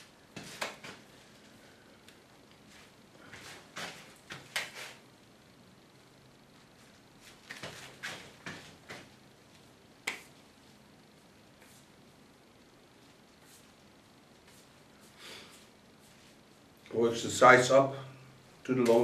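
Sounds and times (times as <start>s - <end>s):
hands smacking hair: 0.4s - 1.0s, 3.4s - 5.0s, 10.0s - 10.4s.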